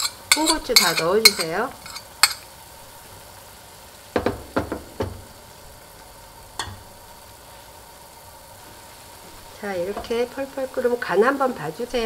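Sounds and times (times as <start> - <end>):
metal spoon knocking on pan: 0.0 - 2.4, 4.2 - 5.2, 6.6 - 6.9
soup boiling: 0.0 - 12.0.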